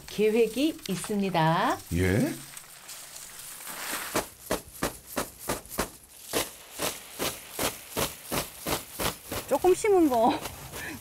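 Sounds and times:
dry plants rustling: 0.0s - 11.0s
stalks striking a parasol: 3.6s - 10.4s.

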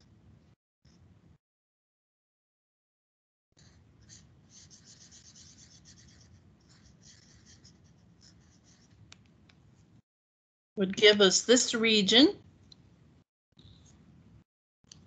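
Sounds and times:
marker rubbing on paper: 3.6s - 9.0s.

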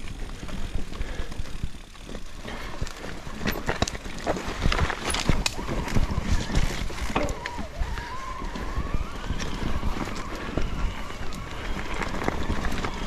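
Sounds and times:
bicycle rolling noise: 0.0s - 13.0s
wind on microphone: 4.5s - 13.0s.

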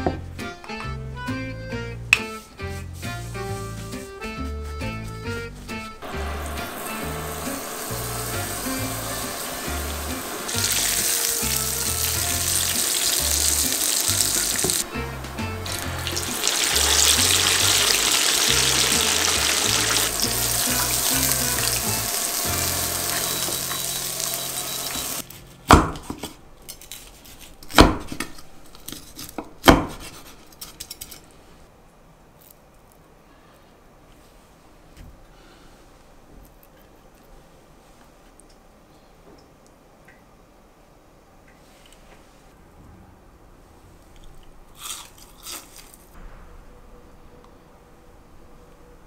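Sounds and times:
background music with bass: 0.0s - 25.2s
meat sizzling in hot oil: 6.0s - 25.2s.

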